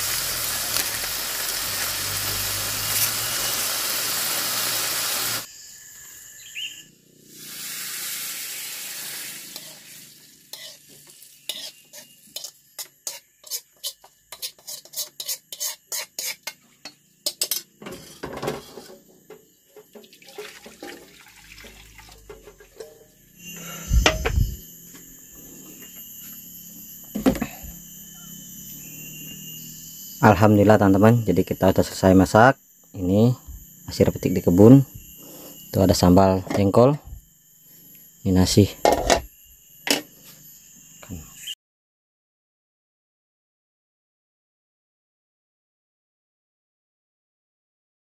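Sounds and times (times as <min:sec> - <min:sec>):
food sizzling in a wok: 0:00.0 - 0:16.6
spatula scraping a wok: 0:07.4 - 0:19.2
loud thump: 0:24.0 - 0:24.6.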